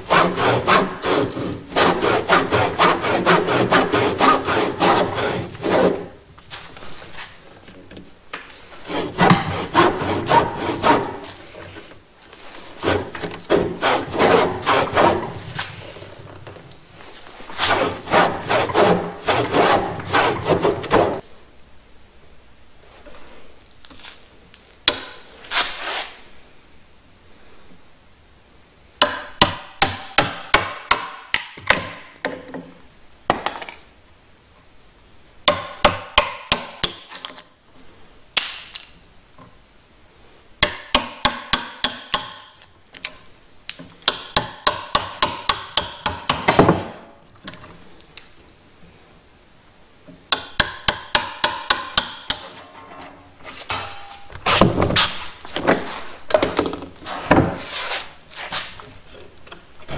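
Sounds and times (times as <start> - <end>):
hammering on timber: 29.0 - 32.0, 35.5 - 37.0, 40.6 - 42.4, 44.1 - 46.8, 50.3 - 52.4.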